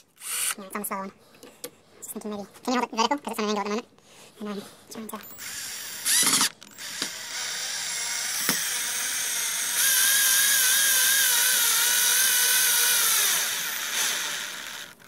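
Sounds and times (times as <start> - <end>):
power drill driving a screw: 0.2 - 0.6, 5.2 - 15.0.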